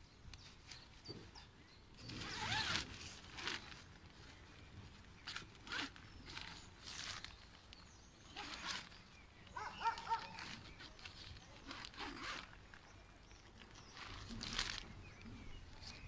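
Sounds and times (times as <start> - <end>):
tent zip rasping: 2.0 - 4.5, 5.2 - 12.9, 13.7 - 16.0.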